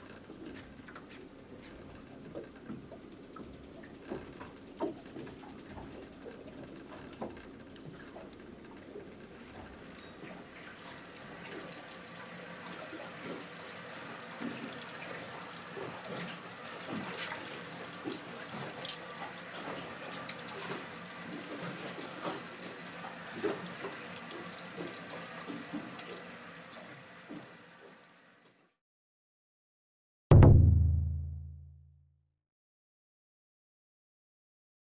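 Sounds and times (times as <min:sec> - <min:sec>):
water lapping against boat hull: 0:00.0 - 0:28.1.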